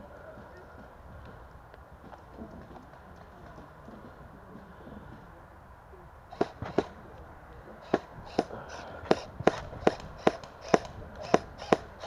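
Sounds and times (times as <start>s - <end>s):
airsoft gun firing single shots: 6.3s - 7.0s, 7.8s - 12.0s.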